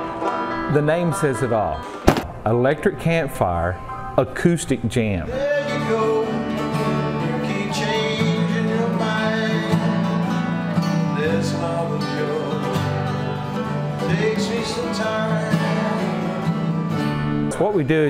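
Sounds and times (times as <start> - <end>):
man singing: 5.2 - 16.6
acoustic guitars and mandolins strummed: 5.3 - 18.0.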